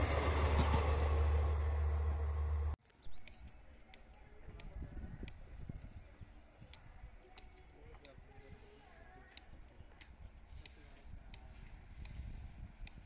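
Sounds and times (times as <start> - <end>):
passing train: 0.0 - 2.8
small bird chirping: 2.9 - 4.0.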